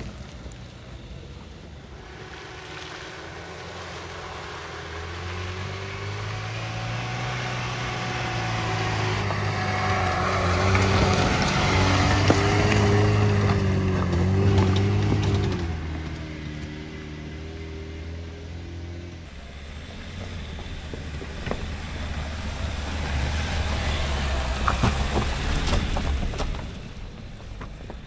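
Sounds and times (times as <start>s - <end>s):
car engine revving: 1.7s - 28.0s
stones cracking under tyres: 9.2s - 16.7s, 20.3s - 28.0s.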